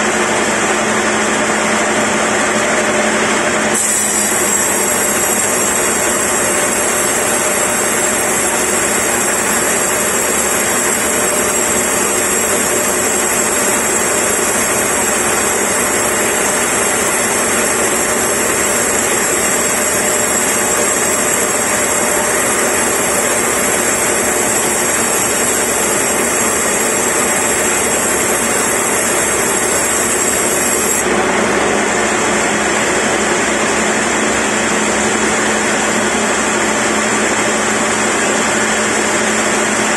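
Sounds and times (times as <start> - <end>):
high saw whine: 2.8 - 39.9
band saw cutting timber: 3.6 - 33.5.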